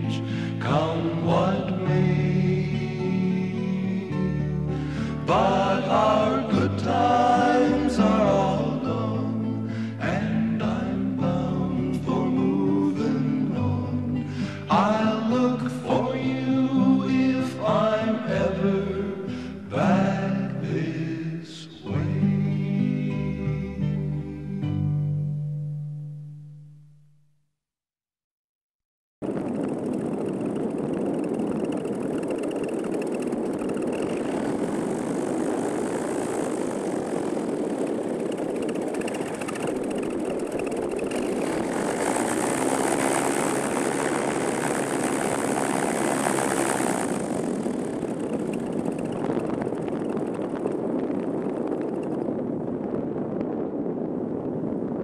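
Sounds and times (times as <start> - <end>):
paraglider engine and propeller: 0.0 - 27.6, 29.2 - 55.0
air rushing past microphone: 29.2 - 55.0.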